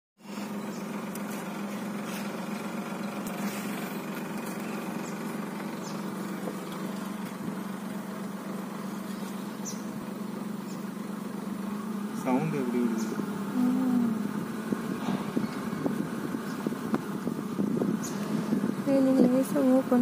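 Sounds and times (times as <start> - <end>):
vehicle engine idling: 0.2 - 20.0.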